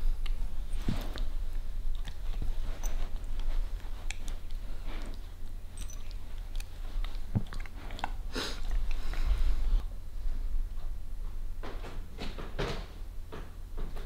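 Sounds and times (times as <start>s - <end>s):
dog chewing plush toy: 0.0s - 9.9s.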